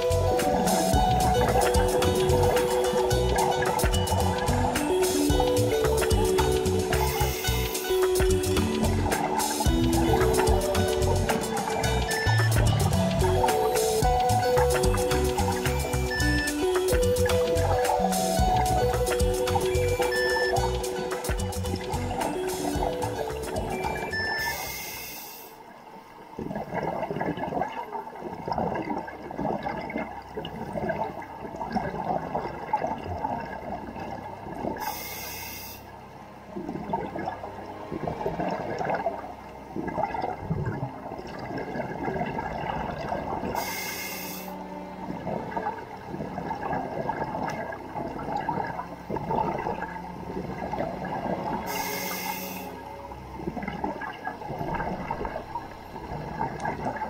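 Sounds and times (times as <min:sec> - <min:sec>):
regulator inhalation hiss: 0:24.5 - 0:25.6, 0:34.8 - 0:35.9, 0:43.6 - 0:44.6, 0:51.7 - 0:52.8
exhaled bubbles rushing: 0:26.3 - 0:34.9, 0:36.6 - 0:44.4, 0:45.1 - 0:57.0.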